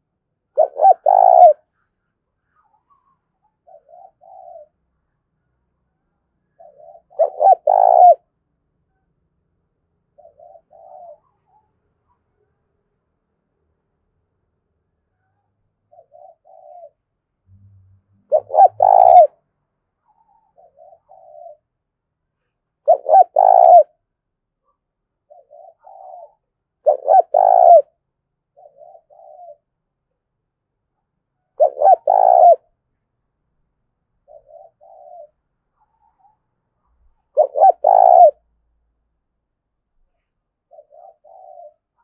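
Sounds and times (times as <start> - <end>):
dove cooing: 0.5 - 1.7, 2.6 - 4.8, 6.6 - 8.3, 10.1 - 11.7, 15.9 - 17.0, 18.3 - 19.4, 20.0 - 21.7, 22.4 - 24.0, 25.2 - 29.7, 31.5 - 32.7, 34.2 - 36.4, 37.1 - 38.4, 40.1 - 42.0.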